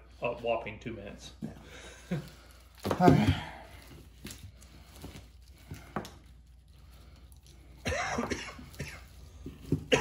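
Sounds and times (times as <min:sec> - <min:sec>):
person coughing: 0:07.8 - 0:10.0.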